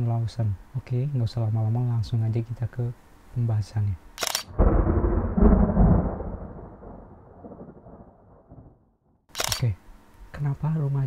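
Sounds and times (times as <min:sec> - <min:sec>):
thunder rumbling: 0:04.5 - 0:08.9.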